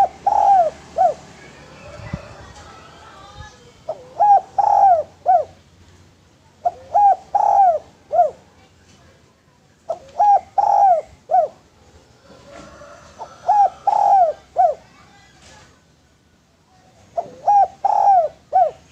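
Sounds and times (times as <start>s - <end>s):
dove cooing: 0.0s - 5.6s, 6.6s - 8.5s, 9.9s - 15.0s, 17.1s - 18.9s.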